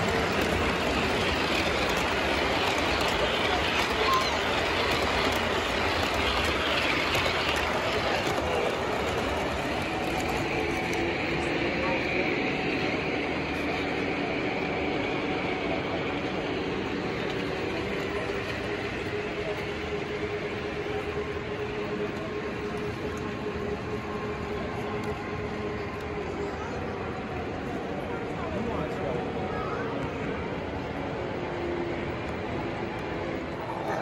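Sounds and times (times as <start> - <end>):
clickety-clack over rail joints: 0.0 - 12.2
constant hum: 0.0 - 34.0
model train wheels rumbling: 0.0 - 34.0.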